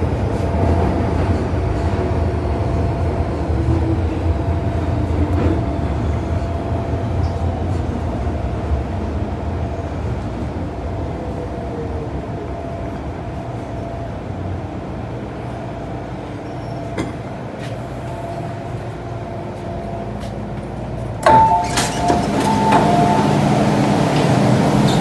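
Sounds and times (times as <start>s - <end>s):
metro train rumbling to a stop: 0.0s - 25.0s
train doors opening clunk: 16.5s - 18.0s, 20.2s - 25.0s
short beeping tones: 21.3s - 23.5s.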